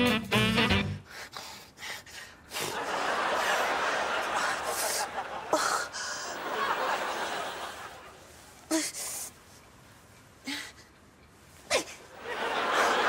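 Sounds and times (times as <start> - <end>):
studio audience laughter: 2.7 - 8.2, 12.1 - 13.0.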